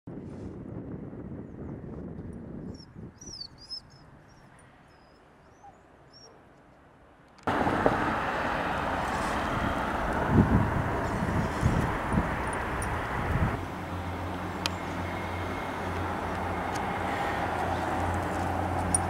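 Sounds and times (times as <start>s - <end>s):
bird chirps: 2.7s - 6.4s.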